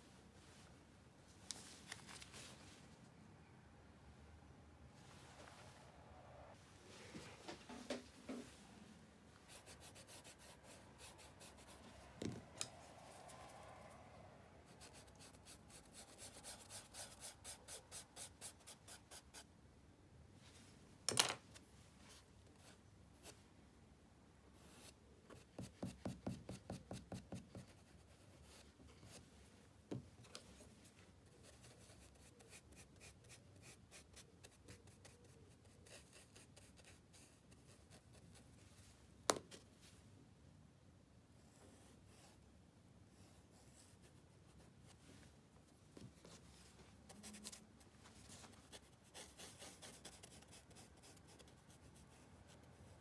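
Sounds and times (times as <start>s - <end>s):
charcoal scratching on paper: 9.5s - 11.9s, 14.7s - 19.4s, 31.2s - 38.4s, 48.3s - 53.0s.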